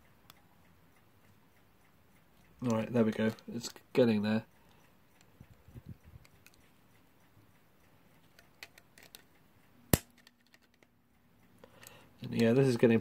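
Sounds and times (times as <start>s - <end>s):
pliers clicking and scraping metal: 8.3s - 9.4s.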